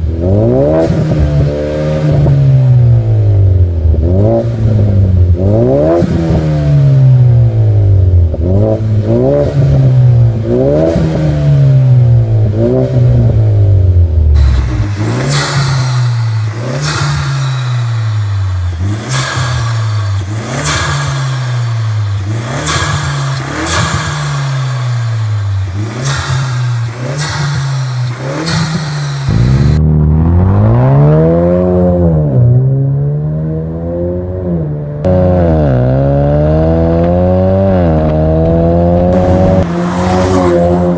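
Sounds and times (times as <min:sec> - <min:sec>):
car engine revving: 0:00.0 - 0:40.9.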